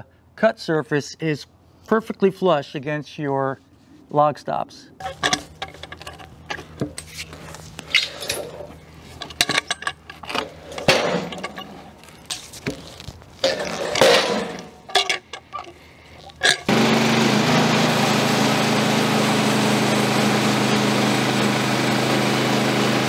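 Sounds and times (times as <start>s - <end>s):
wood sliding and scraping on metal: 5.0s - 16.7s
metal clinks: 13.5s - 16.7s.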